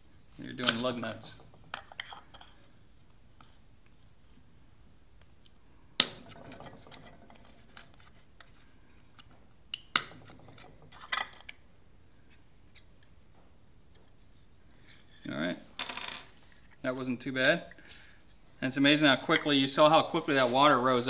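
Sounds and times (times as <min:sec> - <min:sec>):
metal clicks and scrapes: 0:00.6 - 0:02.7.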